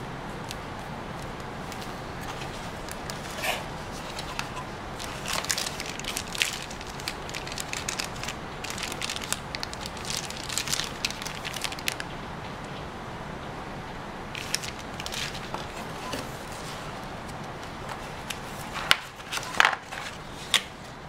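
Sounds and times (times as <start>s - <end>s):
plastic bag crinkling: 1.7s - 12.1s, 14.4s - 16.7s
cardboard box rustle: 2.2s - 12.0s.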